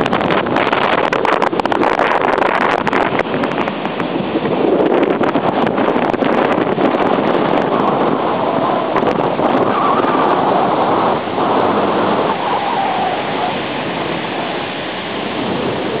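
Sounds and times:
surf breaking: 0.0s - 16.0s
wind buffeting microphone: 0.0s - 16.0s
wind rushing: 0.0s - 16.0s.

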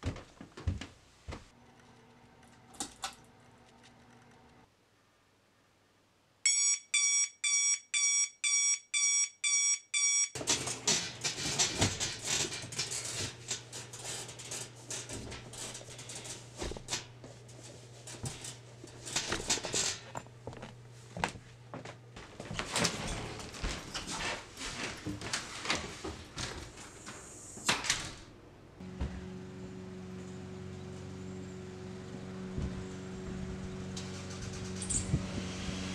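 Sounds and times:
digital alarm clock beeping: 6.5s - 10.4s
rustling and knocks: 10.4s - 26.9s.

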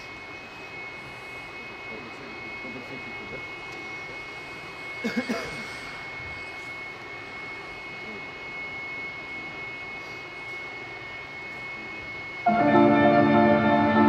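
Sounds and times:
high whine: 0.0s - 14.0s
ventilation machinery hum: 0.0s - 14.0s
music with ringing chords: 12.4s - 14.0s.

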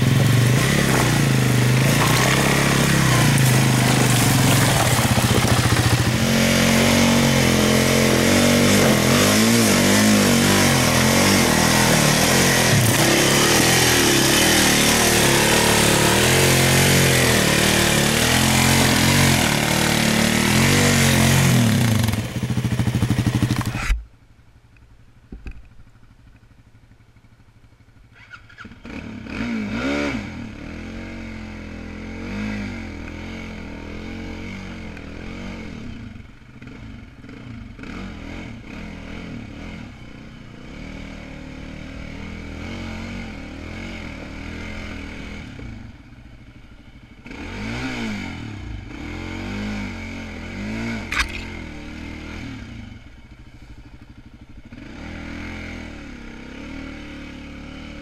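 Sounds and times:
clattering and scraping over rock: 0.0s - 6.3s, 51.1s - 51.6s
atv engine revving: 0.0s - 24.0s, 28.1s - 58.0s.

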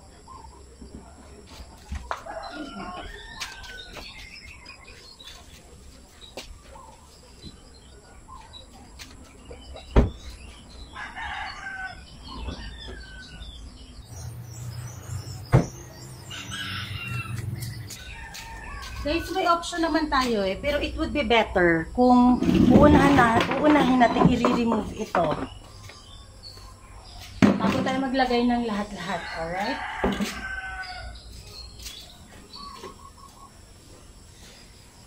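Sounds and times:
rooster crowing: 2.1s - 4.2s, 10.9s - 13.8s, 16.2s - 19.6s, 29.0s - 31.3s.

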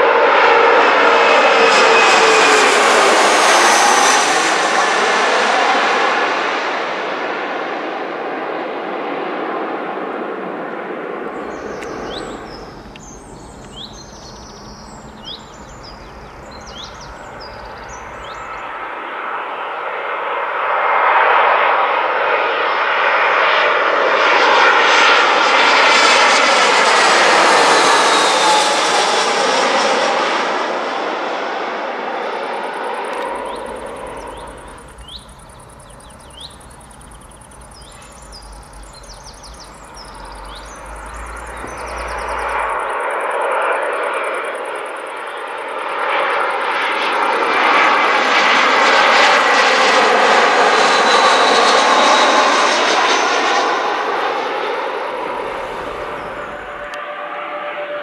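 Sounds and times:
jet airliner passing overhead: 0.0s - 58.0s
birds chirping: 11.3s - 18.9s, 32.4s - 47.9s, 50.8s - 56.9s.

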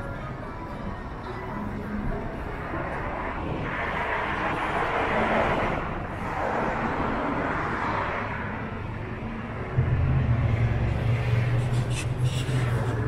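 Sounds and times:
road traffic passing: 0.0s - 13.0s.

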